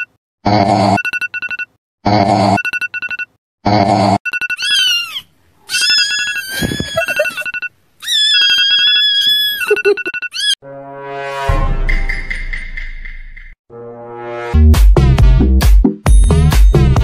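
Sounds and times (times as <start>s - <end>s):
kitten screaming: 4.6s - 7.4s, 8.0s - 9.7s, 10.3s - 10.6s
phone alarm beeping: 7.0s - 7.7s, 9.7s - 10.6s.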